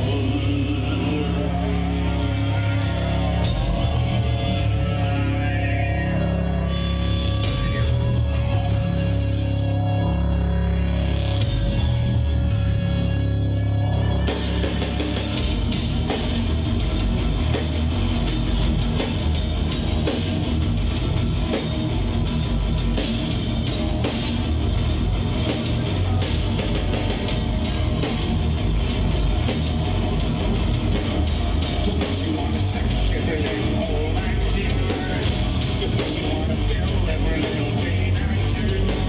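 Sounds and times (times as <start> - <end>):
distorted electric guitars: 0.0 - 39.0
low heavy drone: 0.0 - 39.0
drum kit and cymbals: 14.2 - 39.0.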